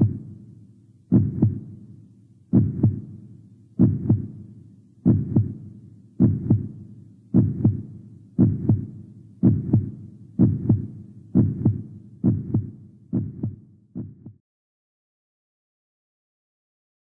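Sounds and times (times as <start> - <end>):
heartbeat thumps: 0.0 - 0.3, 1.1 - 1.8, 2.5 - 3.1, 3.8 - 4.4, 5.0 - 5.6, 6.2 - 14.4.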